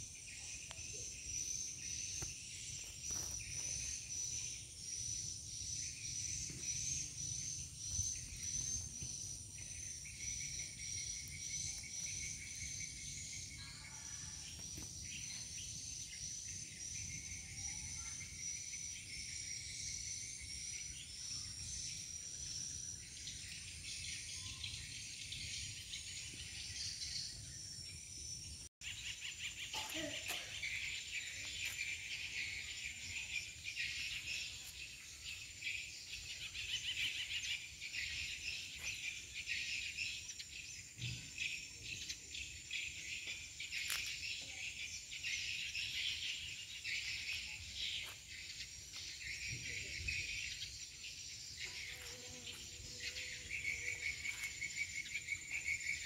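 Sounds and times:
insects chirping: 0.0 - 56.0.

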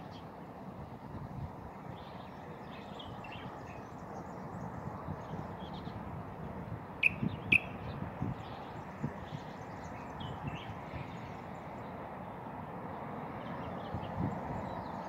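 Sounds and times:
faint bird chirps: 7.0 - 7.9
sharp bird calls: 7.0 - 8.0.

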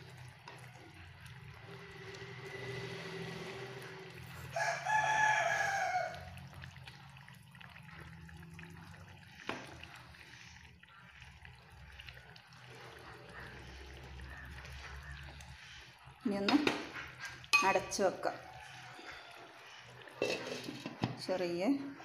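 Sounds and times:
stirring a simmering pot: 0.0 - 22.0
rooster crowing: 4.4 - 6.4, 18.3 - 19.7.

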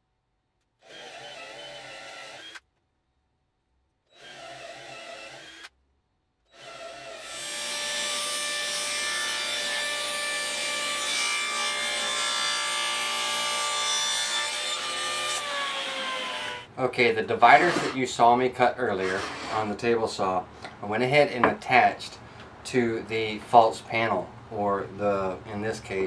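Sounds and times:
cordless drill boring wood: 0.8 - 2.6, 4.1 - 5.7, 6.5 - 16.7, 17.6 - 18.0, 18.9 - 19.7
table saw cutting board: 6.6 - 16.7, 17.4 - 18.2, 18.9 - 19.8.

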